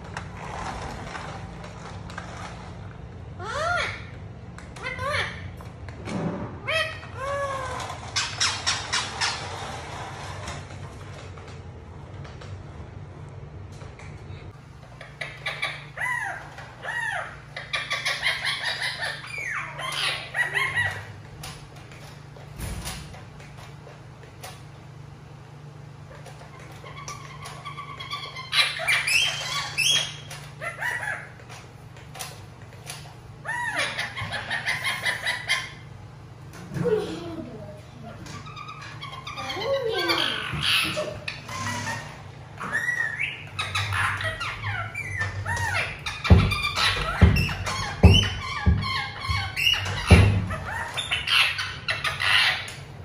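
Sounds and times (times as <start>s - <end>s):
parakeet chirping and calling: 6.6s - 9.9s, 14.9s - 21.2s, 26.1s - 36.0s, 38.3s - 53.0s.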